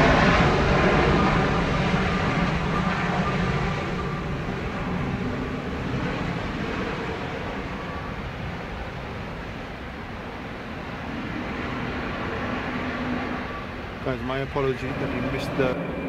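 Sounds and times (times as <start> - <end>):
jet engines running: 0.0 - 16.0.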